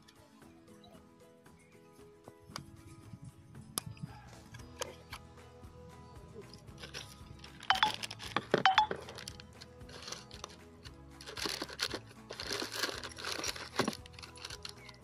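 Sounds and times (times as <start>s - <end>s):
background music: 0.0s - 15.0s
plastic pouch crinkling: 11.2s - 15.0s.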